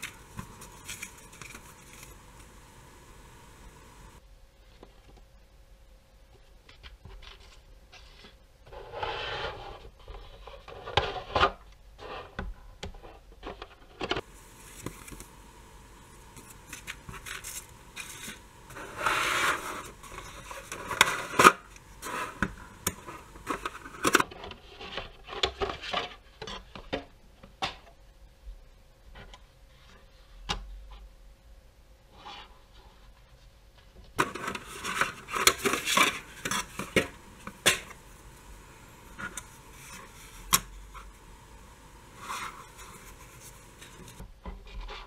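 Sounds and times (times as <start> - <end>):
plastic packaging scraping and rubbing: 0.0 - 4.2, 7.1 - 12.4, 13.0 - 26.3, 34.2 - 45.0.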